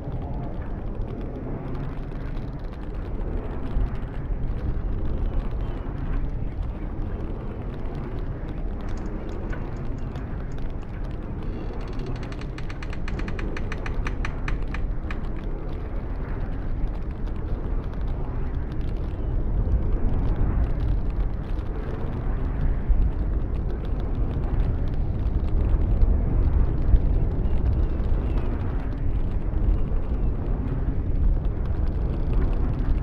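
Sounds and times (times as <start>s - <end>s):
strong gusty wind: 0.0s - 33.0s
rapid rattle of sharp clicks: 8.8s - 10.9s, 11.5s - 15.5s.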